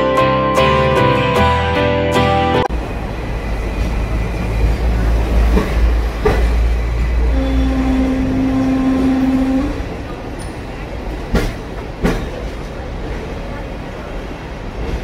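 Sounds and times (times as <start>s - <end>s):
tram rumbling on tracks: 0.0s - 15.0s.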